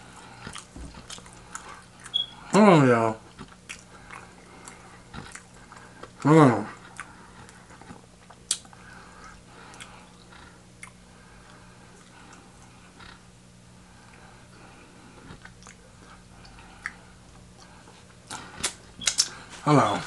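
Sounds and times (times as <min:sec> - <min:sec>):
faint electrical hum: 0:00.0 - 0:20.0.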